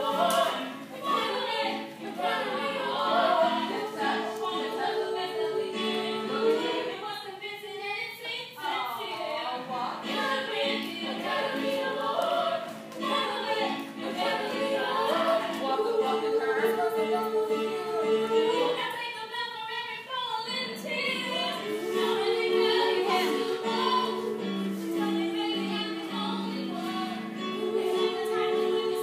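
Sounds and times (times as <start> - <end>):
choir singing: 0.0 - 19.2, 20.4 - 29.0.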